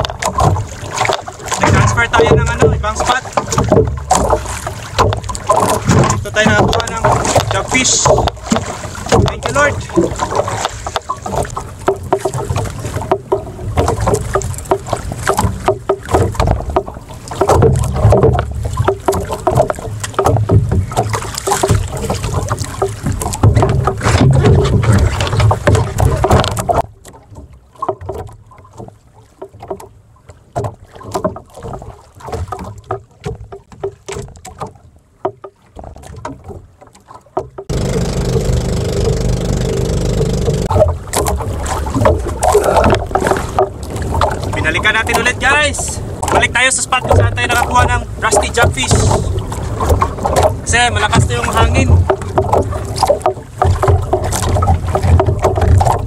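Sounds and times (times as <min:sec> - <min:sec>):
clicks and knocks: 0:00.0 - 0:21.9, 0:37.4 - 0:41.4
water slapping against boat: 0:00.0 - 0:56.0.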